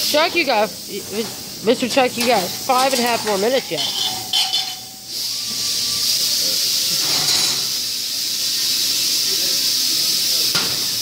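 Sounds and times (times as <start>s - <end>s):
plasma cutter hissing: 0.0s - 11.0s.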